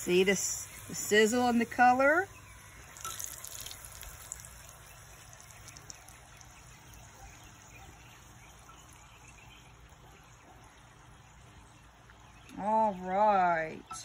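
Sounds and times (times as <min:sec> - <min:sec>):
dough frying in hot oil: 0:00.0 - 0:12.6.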